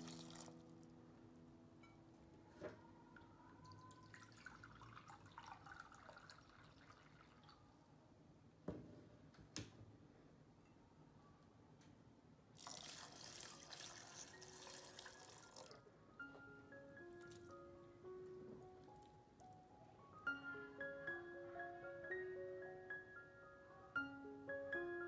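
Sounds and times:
water running into glass bowl: 0.0 - 0.6, 3.6 - 7.6, 12.6 - 15.8
faint drips and crackles: 3.1 - 8.0, 12.6 - 15.8, 18.5 - 19.6.

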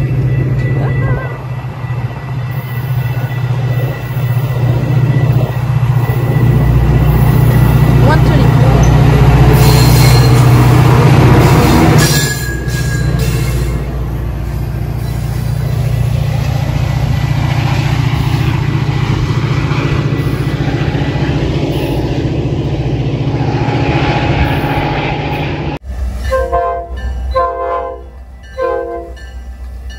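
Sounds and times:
train passing rumble: 0.0 - 29.9
train horn blasts: 26.2 - 29.4.

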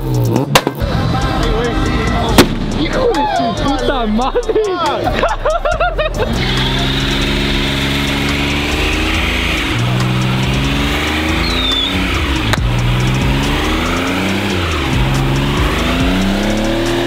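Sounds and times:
truck engine at high revs: 0.0 - 17.0
tyres spinning: 0.0 - 17.0
sharp pop: 0.3 - 0.8, 2.4 - 3.0, 12.5 - 12.7.

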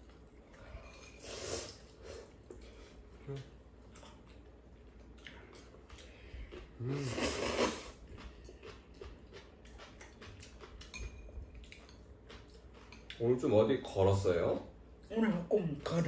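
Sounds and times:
quiet chewing: 0.0 - 13.4
noodle slurp: 6.8 - 8.0.

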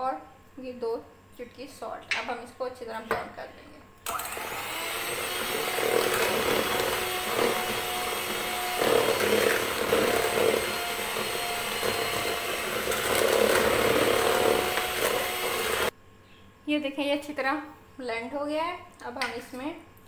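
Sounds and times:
electric hand mixer running: 4.1 - 15.9.

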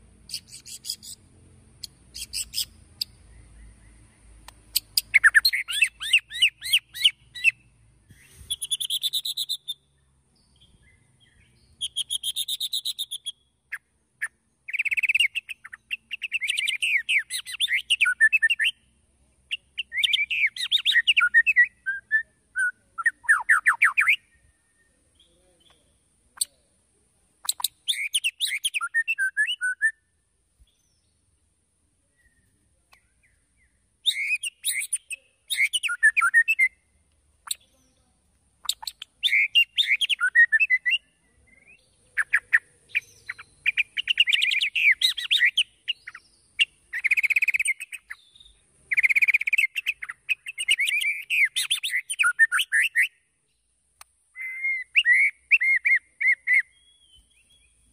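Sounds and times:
bird singing whistled phrases: 2.2 - 4.0, 4.7 - 7.6, 8.5 - 9.8, 10.6 - 13.4, 14.2 - 18.8, 19.5 - 25.3, 27.5 - 30.0, 34.0 - 36.8, 38.7 - 53.2, 54.3 - 57.8.

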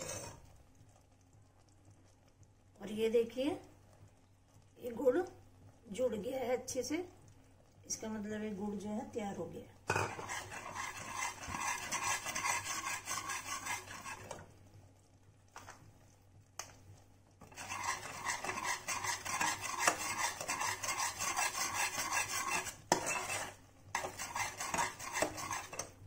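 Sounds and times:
metal spatula scraping pan: 0.0 - 0.5, 9.9 - 14.4, 17.4 - 26.0.

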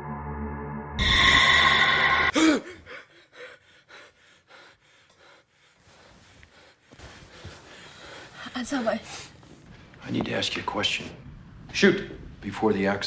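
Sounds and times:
heavy breathing: 1.0 - 9.6
man gasping: 2.3 - 6.6.

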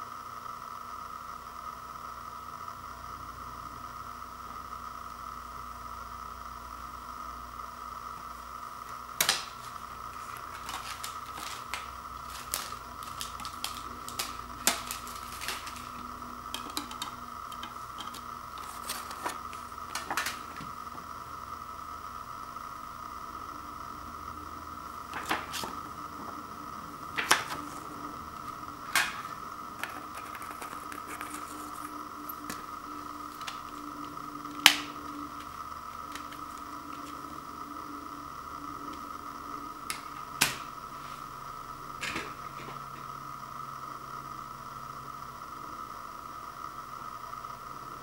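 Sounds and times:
steady hum: 0.0 - 48.0
cd case snapping shut: 9.2 - 9.6
plastic cd case clicking: 10.2 - 20.7, 28.4 - 32.6.

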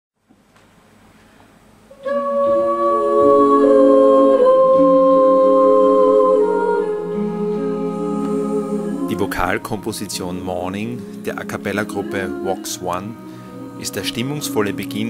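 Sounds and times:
a cappella group singing chords: 1.9 - 15.0.

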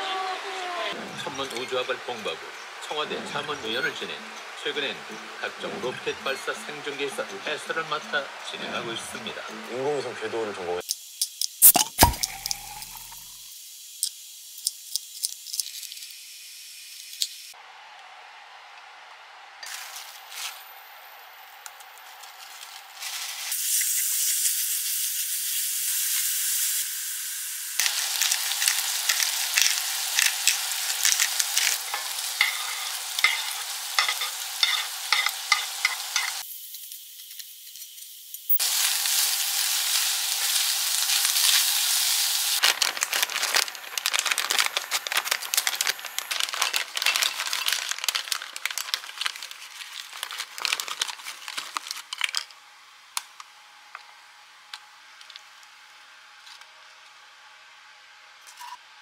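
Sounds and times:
meat sizzling in skillet: 10.8 - 17.6, 22.4 - 50.6
snack bag crinkling: 27.8 - 34.2, 42.6 - 52.5
chips poured onto plate: 27.8 - 36.4, 42.6 - 52.5.

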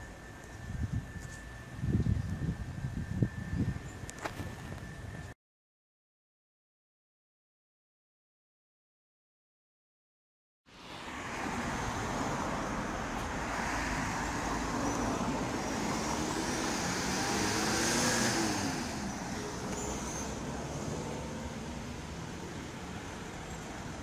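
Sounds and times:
wind rumble on microphone: 0.4 - 5.4
ambulance driving past: 10.7 - 24.0.

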